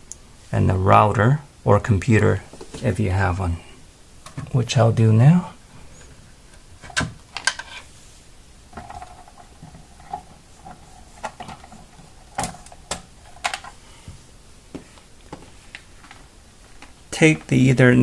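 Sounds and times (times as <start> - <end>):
clicks and knocks handling electronics: 6.0 - 7.9, 8.8 - 13.8.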